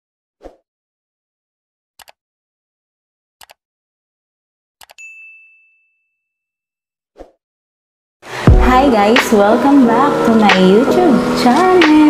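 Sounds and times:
notification bell ding: 4.9s - 6.4s.

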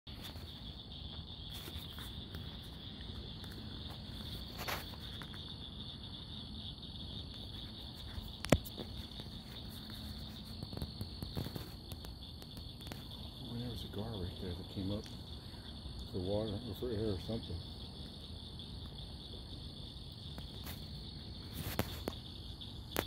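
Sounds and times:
night insects chorus: 0.1s - 23.0s.

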